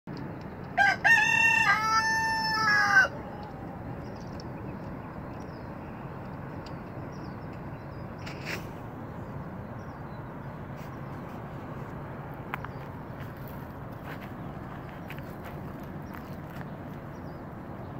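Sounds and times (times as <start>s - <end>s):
rooster crowing: 0.8s - 3.8s.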